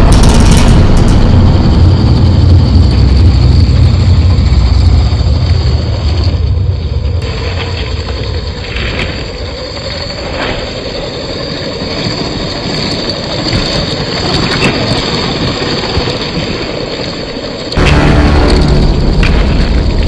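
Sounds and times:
low rumble: 0.0 - 7.9, 17.8 - 20.0.

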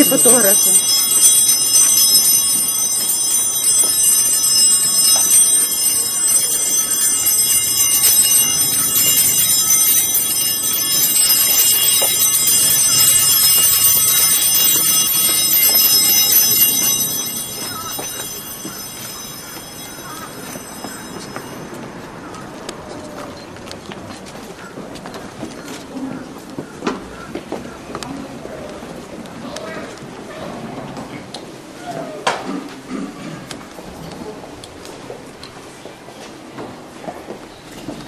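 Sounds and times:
church bells pealing: 0.0 - 23.2.

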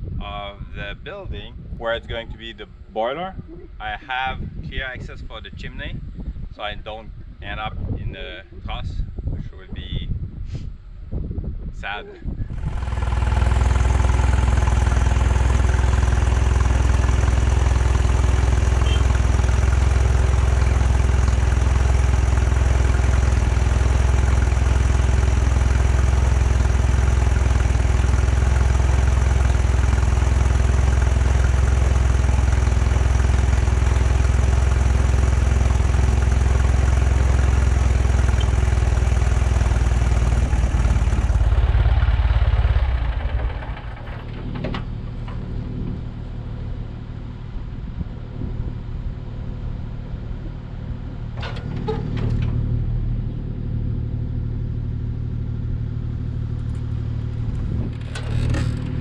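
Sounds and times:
engine idling: 12.5 - 59.0.

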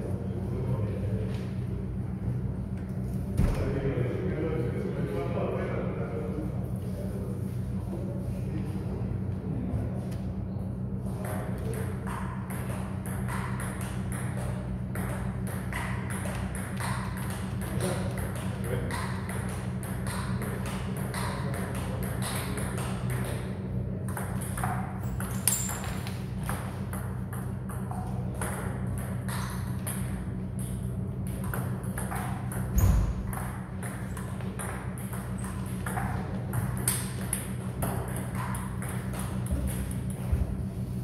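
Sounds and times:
steady low hum: 0.0 - 41.0
low thump: 3.4 - 3.8.

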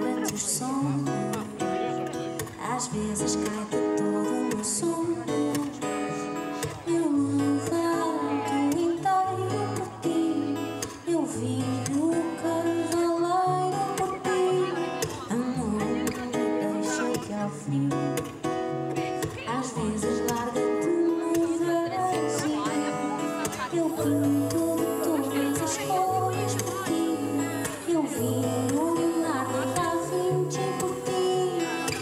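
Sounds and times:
woman singing: 0.0 - 1.6, 2.4 - 18.4, 19.0 - 32.0
strummed acoustic guitars: 0.0 - 32.0.

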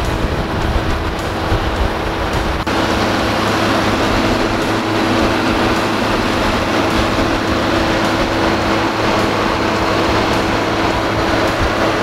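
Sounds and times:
diesel tractor engine running: 0.0 - 12.0.

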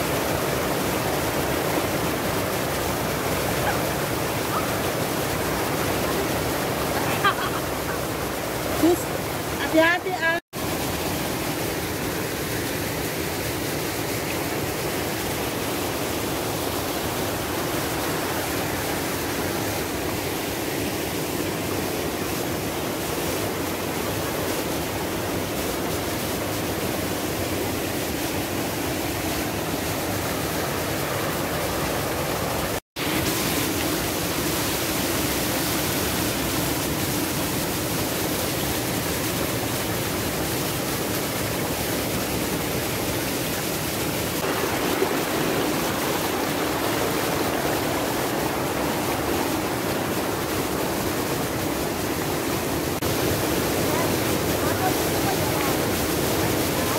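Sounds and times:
waterfall rushing over rocks: 0.0 - 56.9.

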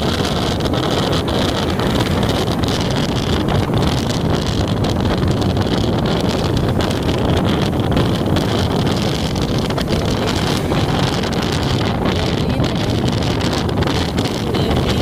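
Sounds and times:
tyre noise on wet road: 0.0 - 15.0
wind buffeting crackles: 0.0 - 15.0
wind rushing over microphone: 0.0 - 15.0.

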